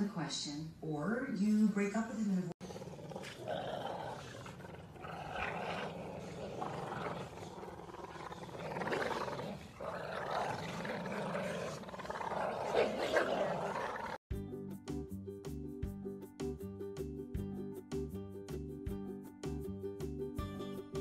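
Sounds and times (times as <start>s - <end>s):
dog growling: 2.6s - 14.2s.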